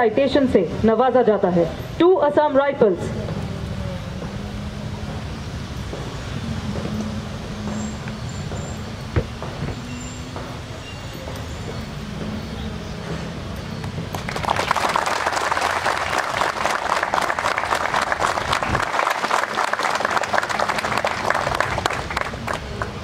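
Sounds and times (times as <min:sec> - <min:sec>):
audience applauding: 0:13.9 - 0:23.0.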